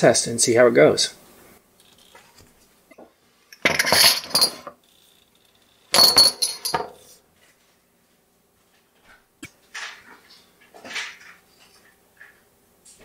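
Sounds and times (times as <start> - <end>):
shot glasses clinking: 5.9 - 6.9.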